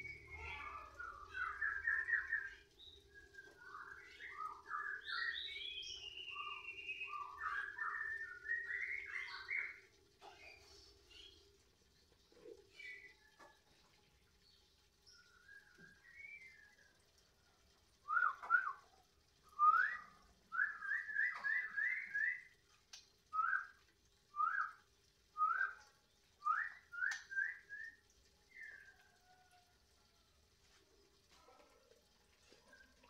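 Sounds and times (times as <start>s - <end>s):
songbird singing: 0.0s - 13.8s, 14.4s - 17.2s, 18.0s - 24.8s, 25.4s - 29.6s.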